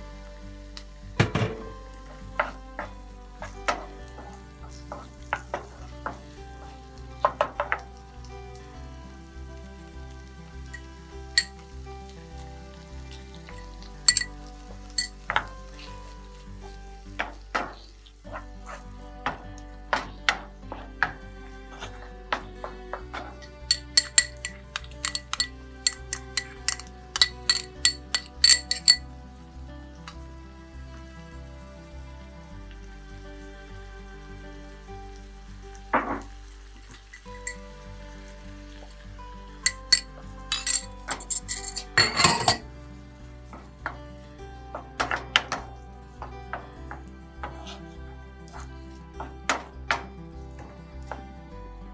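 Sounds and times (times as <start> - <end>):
vegetables sizzling in a frying pan: 0.0 - 24.0, 31.8 - 41.2, 42.6 - 47.8
soft background music: 0.0 - 51.9
wooden spoon stirring: 2.0 - 8.0, 13.1 - 29.0, 36.8 - 37.7, 39.6 - 42.7, 44.7 - 51.3.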